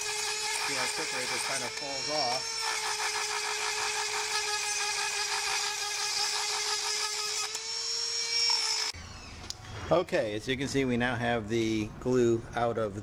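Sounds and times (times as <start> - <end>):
rotary tool grinding: 0.0 - 9.0.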